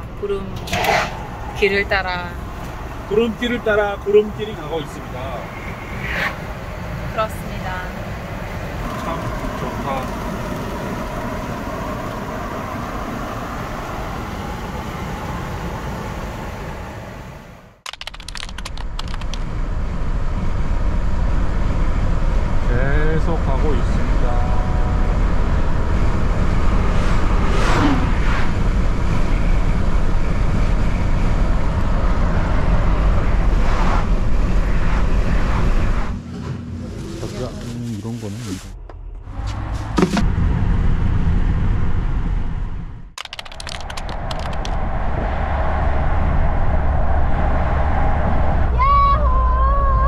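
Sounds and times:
vehicles whooshing past: 0.0 - 17.8, 19.4 - 50.0
wind rush and road noise: 0.0 - 50.0
air blowing through open window: 43.6 - 49.8.

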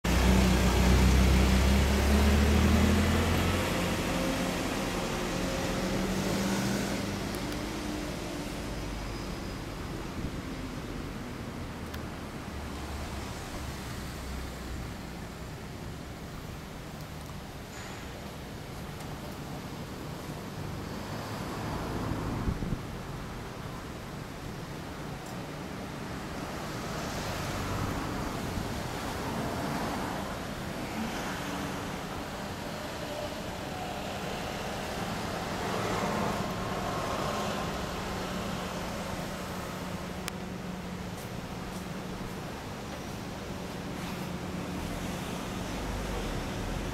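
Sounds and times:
wind buffeting microphone: 22.4 - 23.1.

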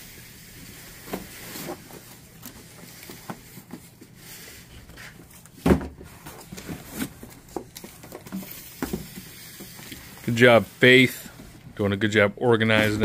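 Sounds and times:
box thump: 5.6 - 6.1.

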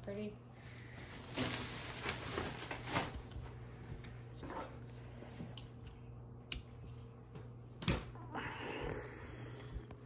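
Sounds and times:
plastic wrapping rustling: 0.9 - 3.6.

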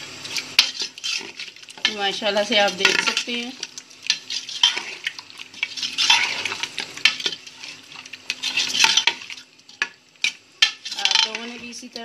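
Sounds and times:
food frying: 0.0 - 12.0
spoon scraping metal pot: 0.6 - 11.8.

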